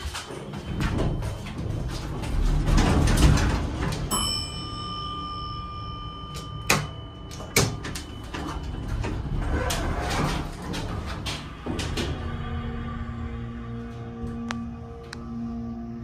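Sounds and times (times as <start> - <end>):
elevator doors sliding shut: 0.0 - 4.8, 6.4 - 13.0
elevator chime: 0.0 - 16.0.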